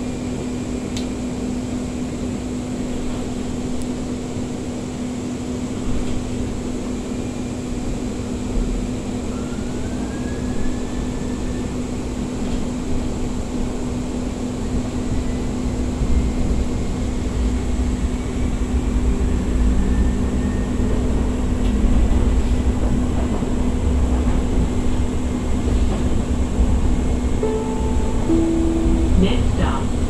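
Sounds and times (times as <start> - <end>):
wheels rumbling on rail: 0.0 - 30.0
steady hum: 26.2 - 30.0.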